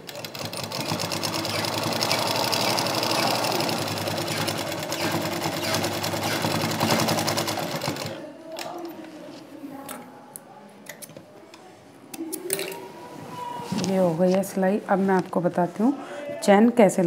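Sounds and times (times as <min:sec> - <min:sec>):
sewing machine stitching: 0:00.0 - 0:08.2.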